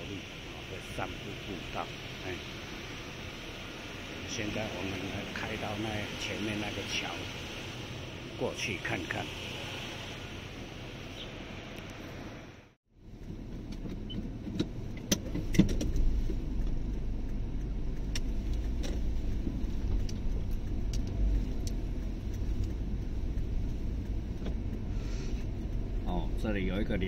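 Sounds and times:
road and engine rumble: 0.0 - 27.0.

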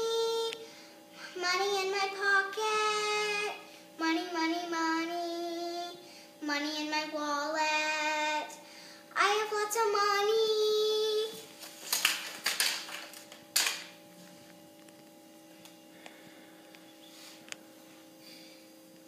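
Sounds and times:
girl singing: 0.0 - 11.5
faint steady hum: 0.0 - 19.0.

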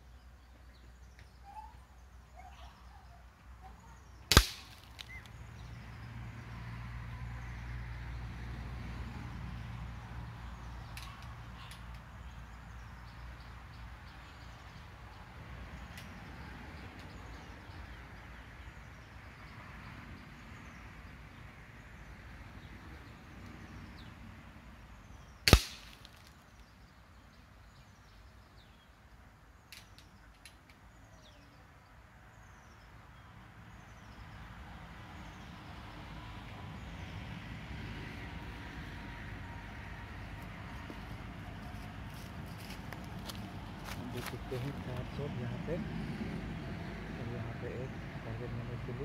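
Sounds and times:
faint bird chirps: 0.0 - 4.3
air rifle shot: 4.3 - 5.2, 25.5 - 26.2.

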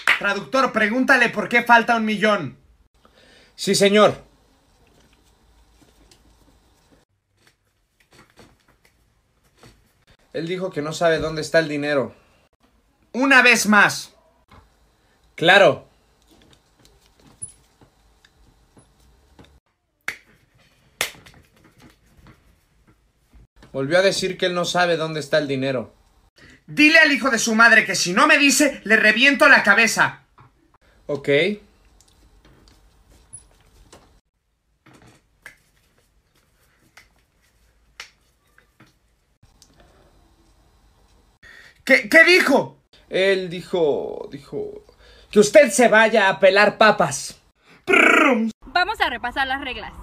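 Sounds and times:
hands smacking together: 21.0 - 22.0, 35.4 - 35.9, 37.9 - 38.2.

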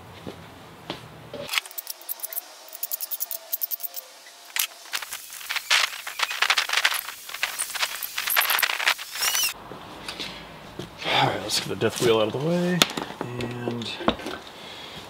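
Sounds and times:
metal bracket clicks and scrapes: 1.5 - 9.6.

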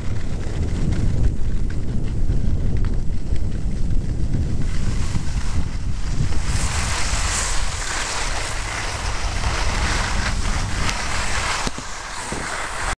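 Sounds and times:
skis sliding on packed snow: 0.0 - 13.0
wind buffeting microphone: 0.0 - 13.0.

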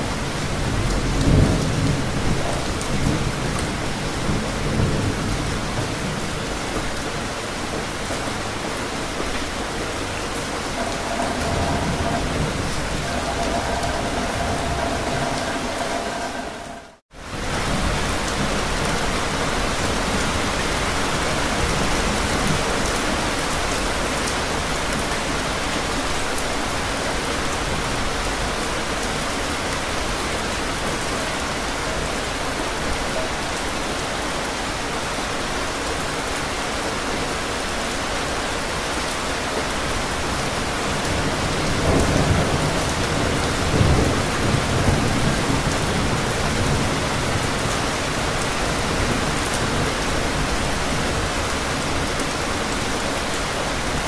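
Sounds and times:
heavy rain on pavement: 0.0 - 54.0
low thunder rumbling: 10.0 - 18.6.

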